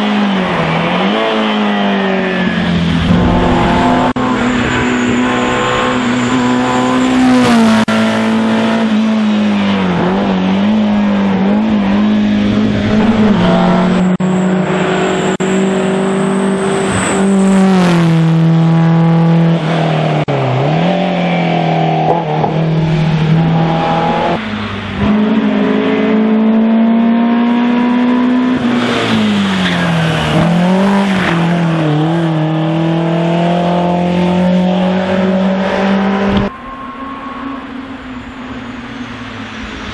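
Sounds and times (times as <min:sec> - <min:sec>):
race car engines revving: 0:00.0 - 0:39.9.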